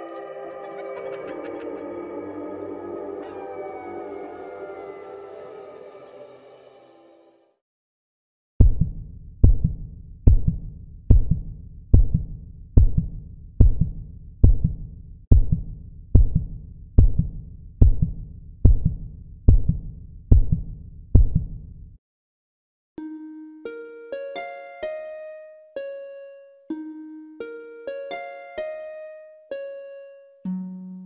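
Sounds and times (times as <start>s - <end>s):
heartbeat double thump: 8.6s - 21.6s.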